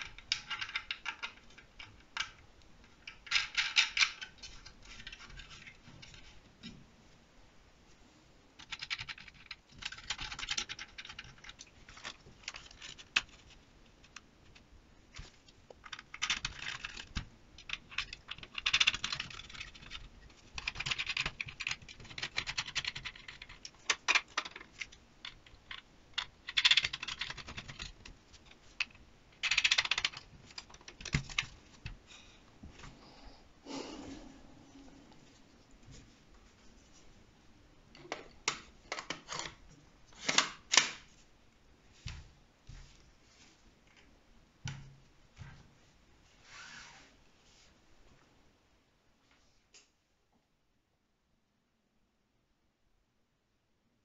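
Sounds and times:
plastic parts scraping and clicking: 0:00.0 - 0:06.8, 0:08.6 - 0:32.0, 0:38.0 - 0:41.1.

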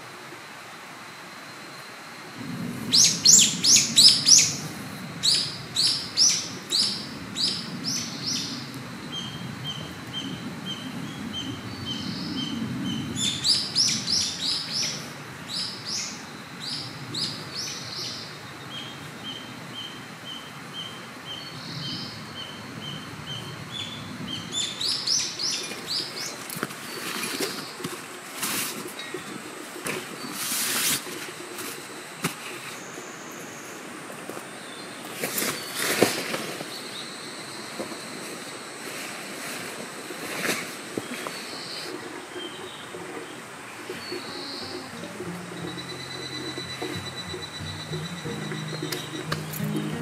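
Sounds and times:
bird phrase of high falling notes: 0:44.2 - 0:50.0.

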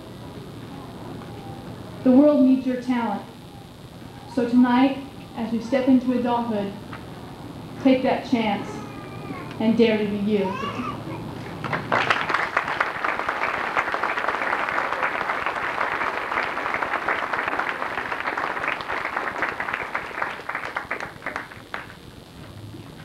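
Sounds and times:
audience applauding: 0:11.2 - 0:22.1.

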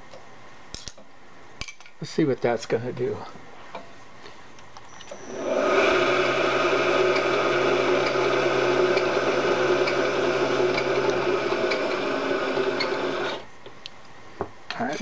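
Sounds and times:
milling machine spindle running: 0:05.0 - 0:13.5.

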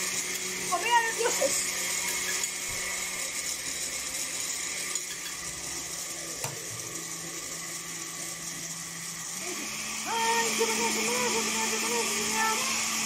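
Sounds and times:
utensil scraping in blender jar: 0:04.8 - 0:05.7.

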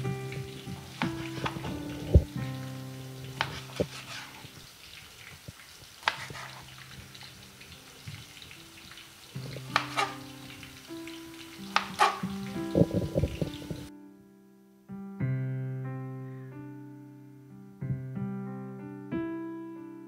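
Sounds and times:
background music: 0:00.0 - 0:04.5, 0:06.3 - 0:20.0
faint frying sizzle: 0:00.0 - 0:13.9
knife slicing tomatoes: 0:03.4 - 0:04.4, 0:06.0 - 0:06.7, 0:09.8 - 0:10.2, 0:11.8 - 0:12.3
knife tapping cutting board: 0:06.0 - 0:06.6, 0:09.7 - 0:10.2, 0:11.7 - 0:12.3.

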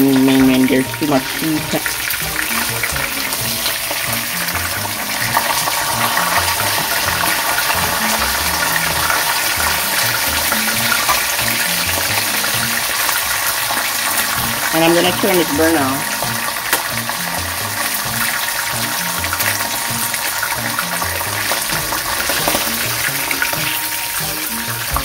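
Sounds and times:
background music with bass: 0:00.0 - 0:13.0, 0:14.0 - 0:25.0
fish sizzling in hot oil: 0:00.0 - 0:25.0.

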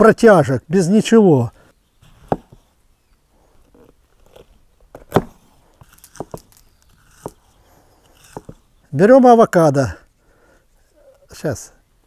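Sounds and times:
knife slicing vegetables: 0:04.2 - 0:08.6
knife chopping: 0:04.3 - 0:07.5, 0:08.2 - 0:08.6.

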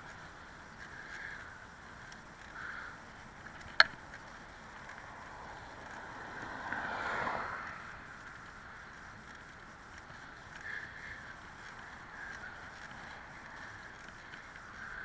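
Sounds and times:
bicycle rolling: 0:00.0 - 0:15.0
van passing: 0:04.0 - 0:14.8.

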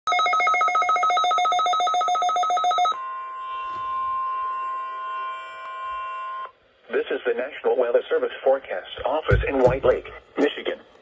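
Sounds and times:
steady warning alarm tone: 0:00.1 - 0:06.6.

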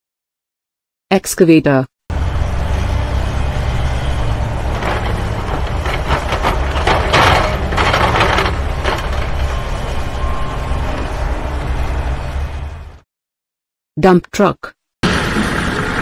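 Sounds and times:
excavator diesel engine running: 0:02.1 - 0:13.0.

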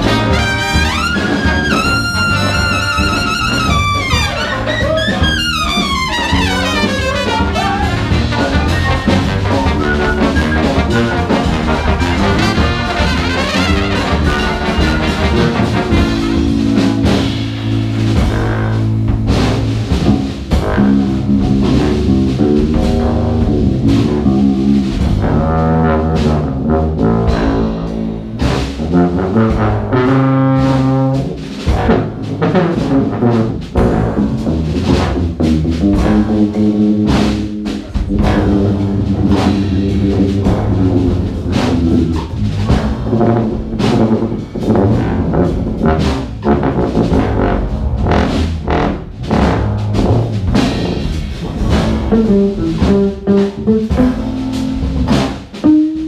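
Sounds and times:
brass and saxophone chords: 0:00.0 - 0:56.0
drum kit beat: 0:00.0 - 0:56.0
tuba bass line: 0:00.0 - 0:56.0.

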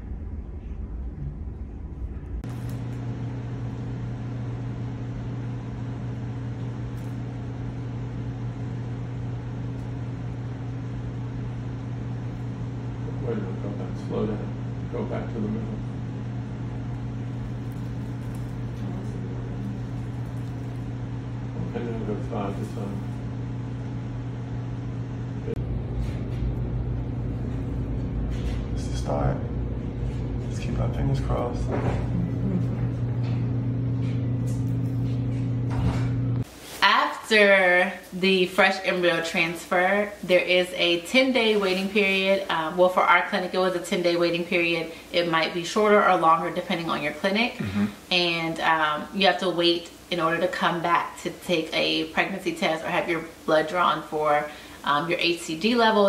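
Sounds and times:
deep rumble: 0:00.0 - 0:06.9
low machine hum: 0:00.0 - 0:56.0.

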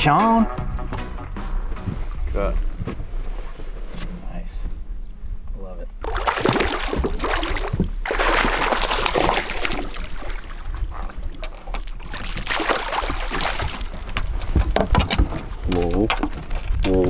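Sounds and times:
fish splashing in water: 0:06.0 - 0:11.6, 0:12.4 - 0:14.1.

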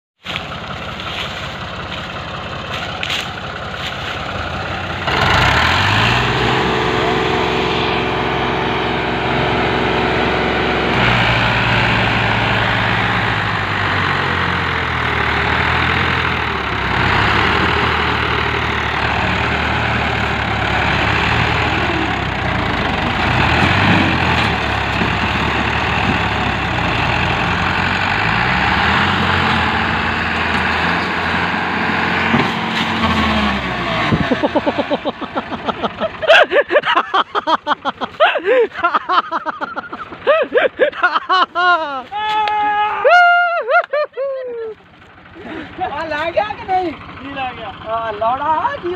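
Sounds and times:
tractor diesel engines revving: 0:00.2 - 0:48.9.

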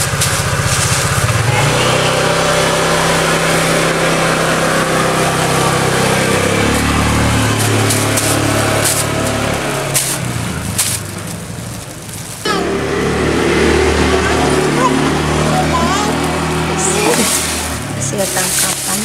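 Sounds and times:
engine chugging: 0:00.0 - 0:19.0.

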